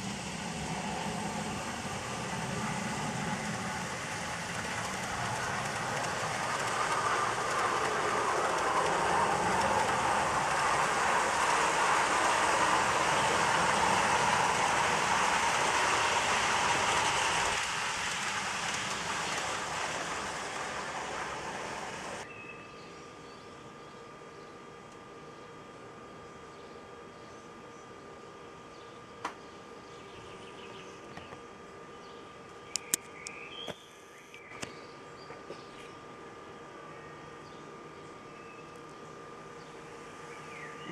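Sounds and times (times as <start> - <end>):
model train rumbling past: 0.0 - 22.2.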